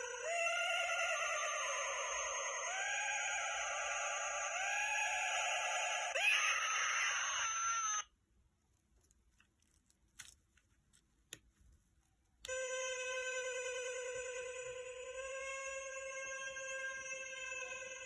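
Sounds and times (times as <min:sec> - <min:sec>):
eerie wavering electronic tones: 0:00.0 - 0:08.0, 0:12.5 - 0:18.0.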